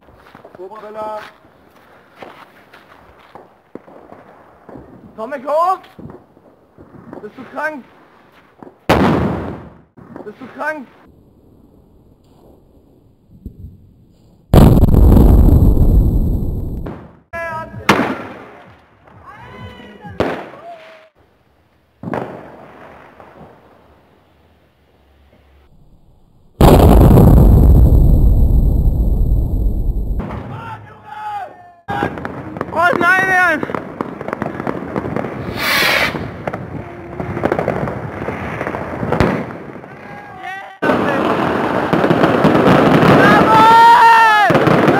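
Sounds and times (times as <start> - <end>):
firework bangs: 3.1 - 7.8, 8.6 - 10.8, 14.5 - 17.2, 17.8 - 19.2, 20.2 - 20.8, 22.0 - 24.1, 26.6 - 30.8, 31.9 - 40.2, 40.8 - 44.9
loud hissing burst: 35.4 - 36.4.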